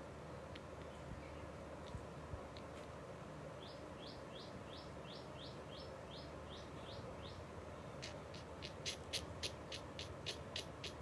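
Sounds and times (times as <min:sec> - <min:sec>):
bird chirping faintly: 0:03.5 - 0:11.0.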